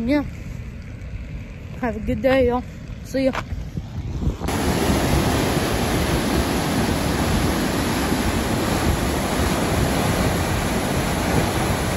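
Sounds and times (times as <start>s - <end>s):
water rushing down spillway: 4.5s - 11.9s.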